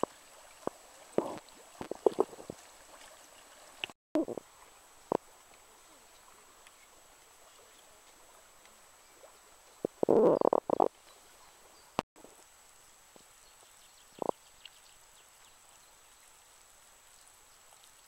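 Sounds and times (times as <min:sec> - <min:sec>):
gas bubbling through muddy water: 0:00.0 - 0:02.6.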